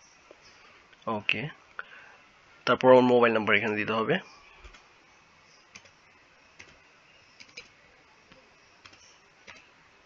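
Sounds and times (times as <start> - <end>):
keyboard keys clicking: 5.7 - 5.9, 6.6 - 6.8, 8.3 - 9.7.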